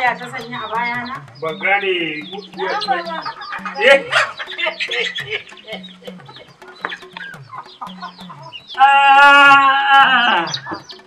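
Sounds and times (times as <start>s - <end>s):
chickens clucking: 0.0s - 11.0s
rooster crowing: 8.8s - 10.8s.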